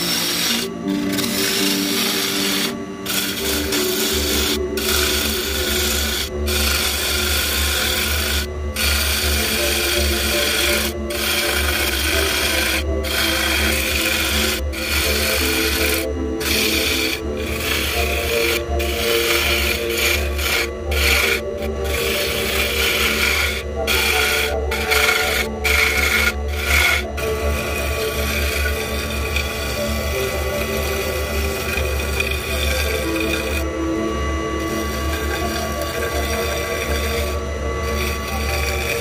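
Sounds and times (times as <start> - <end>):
wood scraping on a lathe: 0.0 - 39.0.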